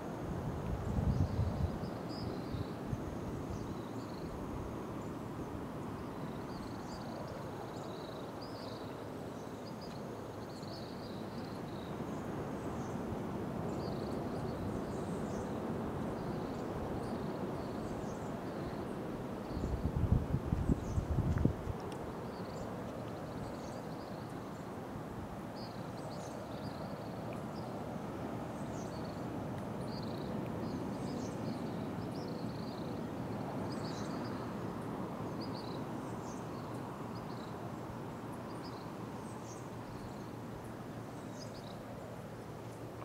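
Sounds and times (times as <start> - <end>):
wind buffeting microphone: 0.7 - 1.8, 19.5 - 21.8.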